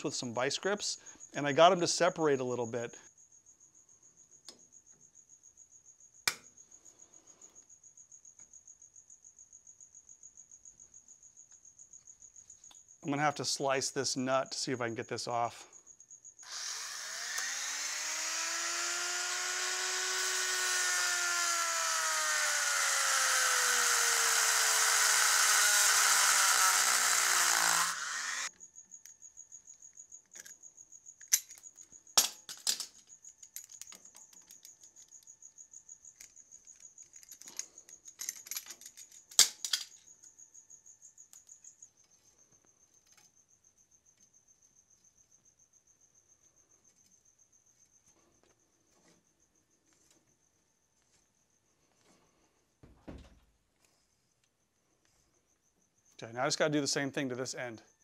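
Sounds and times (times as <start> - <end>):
rotary tool cutting metal: 16.4 - 28.5.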